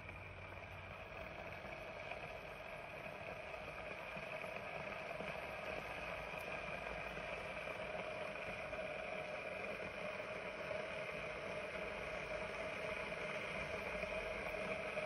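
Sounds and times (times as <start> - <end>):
coffee maker humming and hissing: 0.0 - 15.0.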